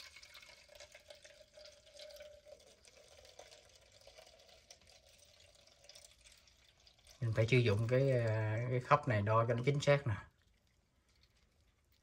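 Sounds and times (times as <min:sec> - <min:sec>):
water trickling into plastic jug: 0:00.0 - 0:12.0.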